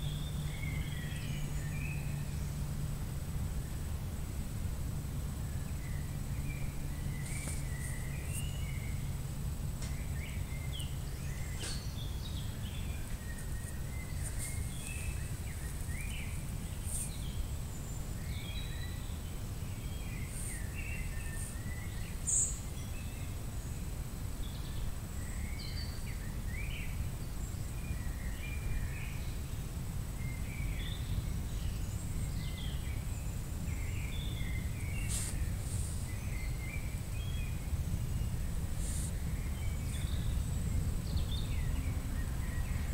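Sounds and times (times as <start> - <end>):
faint high whine: 0.0 - 42.9
steady low rumble: 0.0 - 42.9
bird chirps: 5.6 - 9.2, 9.8 - 23.3.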